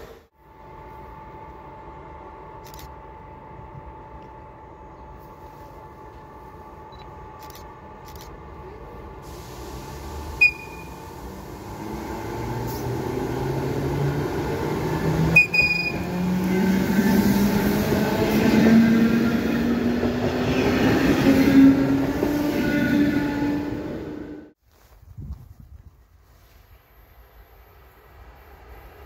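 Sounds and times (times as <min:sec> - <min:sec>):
short high beeps: 0:10.4 - 0:11.0, 0:15.4 - 0:16.1.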